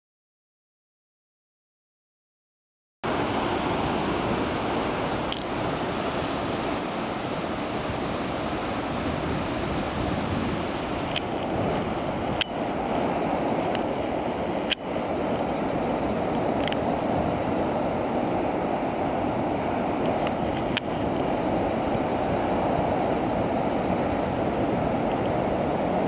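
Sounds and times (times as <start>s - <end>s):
waves breaking over rocks: 3.1s - 26.0s.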